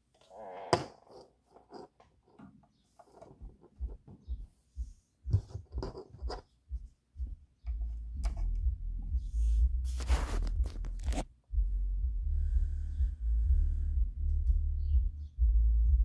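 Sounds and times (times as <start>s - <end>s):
subwoofer playing deep bass: 7.2s - 16.0s.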